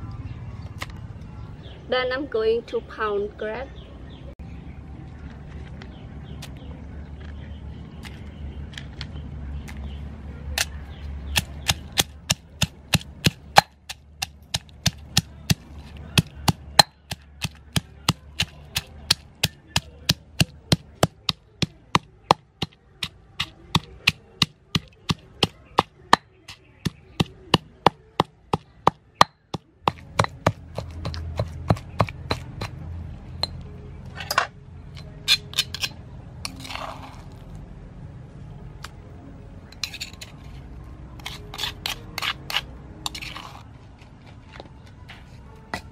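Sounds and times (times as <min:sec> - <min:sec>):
pestle pounding in stone mortar: 0:11.3 - 0:32.8
spoon scraping stone bowl: 0:35.0 - 0:37.5, 0:39.7 - 0:43.7.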